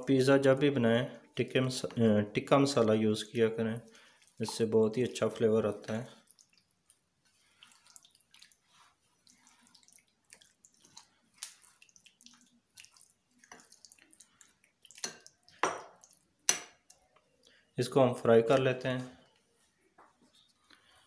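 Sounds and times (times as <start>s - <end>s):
wet squelching of stirred chicken: 1.2s - 17.8s.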